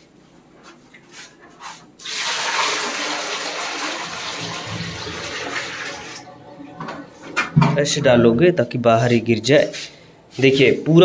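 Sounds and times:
water pouring into toilet bowl: 0:02.0 - 0:06.3.

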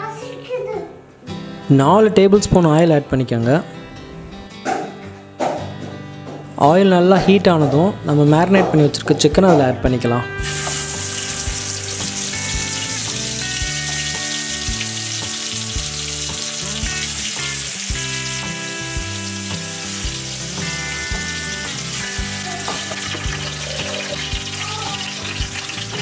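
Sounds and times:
background music with beat: 0:04.2 - 0:06.6, 0:07.2 - 0:26.0
chicken sizzling in hot oil: 0:10.4 - 0:26.0.

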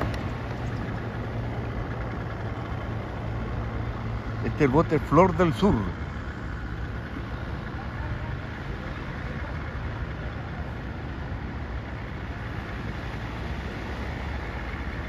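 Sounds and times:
tractor engine rumbling: 0:00.0 - 0:15.0.

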